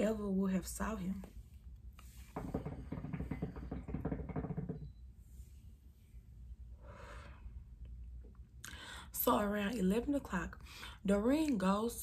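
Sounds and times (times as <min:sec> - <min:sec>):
short breath: 0:06.8 - 0:07.6.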